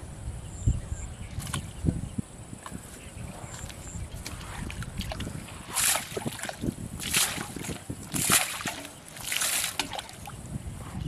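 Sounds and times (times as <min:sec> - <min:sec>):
water splashing: 0:02.6 - 0:10.5.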